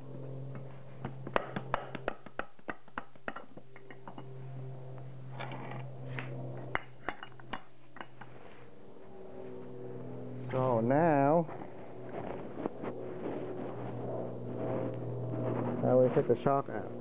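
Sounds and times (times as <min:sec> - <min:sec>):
hammer tapping on metal: 0:01.0 - 0:04.2.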